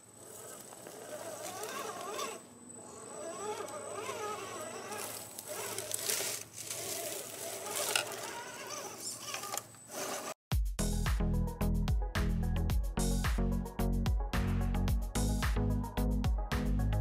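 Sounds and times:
electric motor and gears whining: 0.0 - 10.4.

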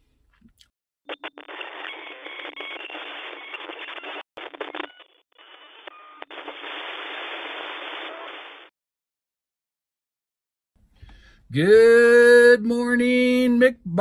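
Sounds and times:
radio static: 1.1 - 8.7.

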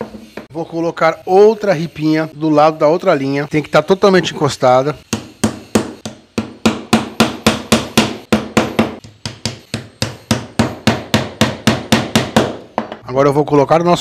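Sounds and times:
hammer driving nails into wood: 5.1 - 13.0.

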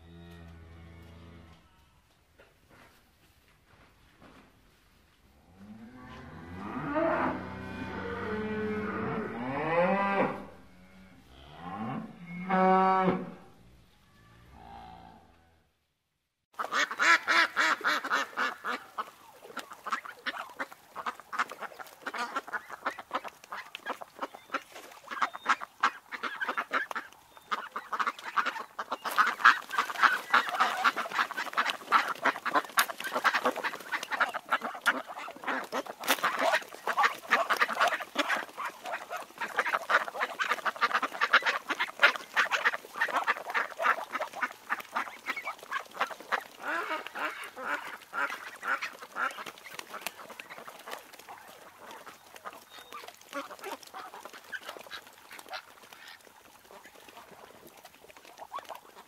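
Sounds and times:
ducklings quacking: 16.6 - 59.0.

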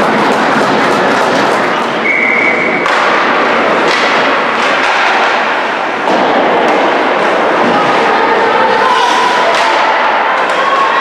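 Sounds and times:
stick hitting puck: 0.0 - 7.0
skates on ice: 0.0 - 11.0.

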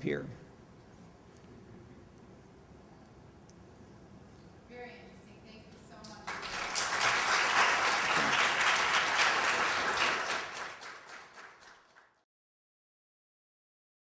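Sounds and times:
audience applauding: 6.1 - 12.2.

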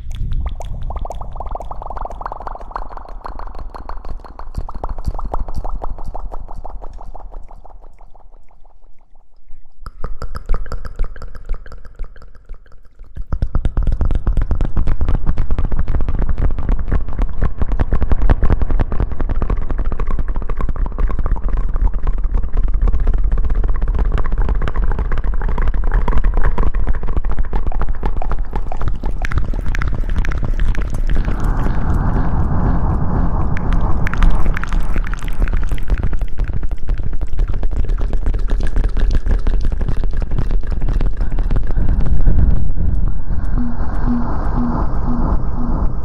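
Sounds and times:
low rumble: 0.0 - 2.4, 30.0 - 36.3, 41.1 - 46.0
wet mouth clicks: 0.0 - 16.4, 19.4 - 32.1, 33.5 - 45.7.

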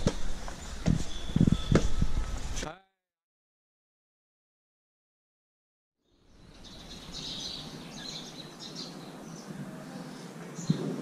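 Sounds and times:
small birds chirping: 6.0 - 11.0.

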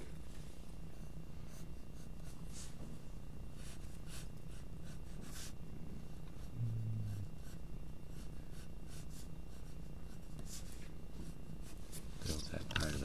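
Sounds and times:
steady low hum: 0.0 - 13.0
pencil scratching on paper: 0.9 - 2.8, 3.6 - 5.6, 7.1 - 13.0.

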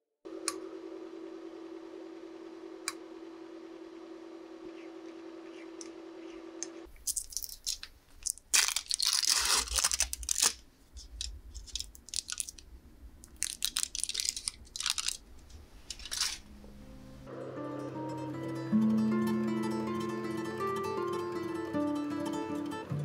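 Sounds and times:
low steady hum: 0.3 - 23.0
foil wrappers crinkling and tearing: 7.0 - 12.6, 13.2 - 15.3, 15.9 - 16.4.

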